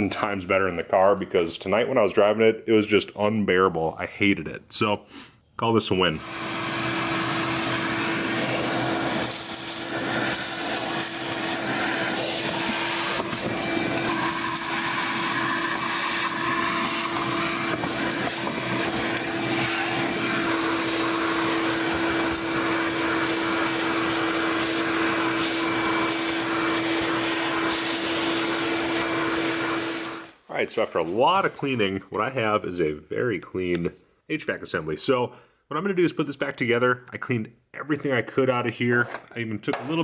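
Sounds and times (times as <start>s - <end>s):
vacuum cleaner running: 6.2s - 30.4s.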